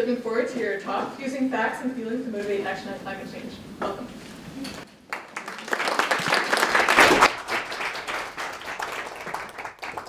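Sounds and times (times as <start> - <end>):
audience applauding: 5.1 - 10.0.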